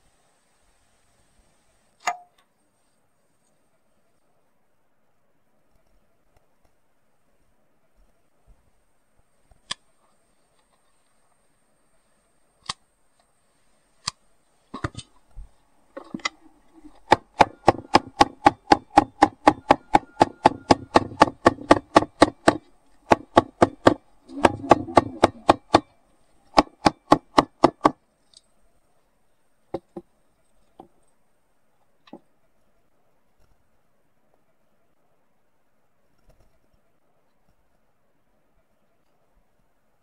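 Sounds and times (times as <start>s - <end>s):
hammer tapping sheet metal: 16.0s - 25.9s, 26.5s - 28.0s.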